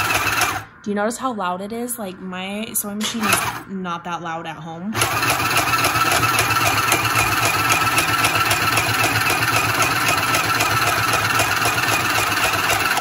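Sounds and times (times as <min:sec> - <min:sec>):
sewing machine motor buzzing: 0:00.0 - 0:00.7, 0:03.0 - 0:03.6, 0:05.0 - 0:13.0.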